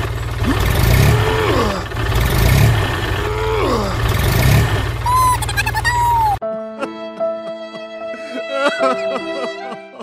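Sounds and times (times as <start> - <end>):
tractor engine rumbling under strain: 0.0 - 6.4.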